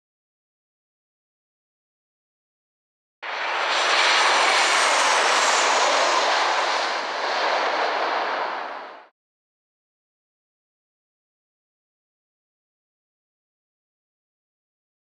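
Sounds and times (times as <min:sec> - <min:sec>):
jet airliner passing overhead: 0:03.2 - 0:09.1.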